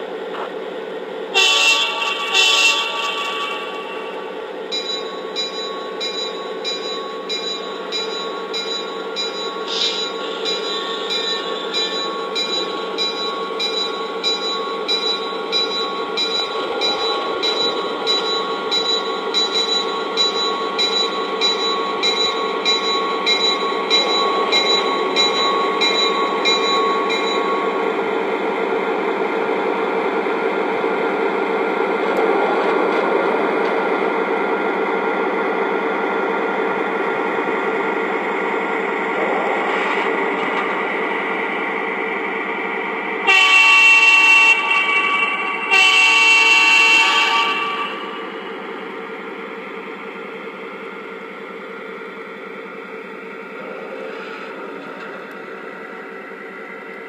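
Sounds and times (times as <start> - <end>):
locomotive bell ringing: 1.4 - 28.5.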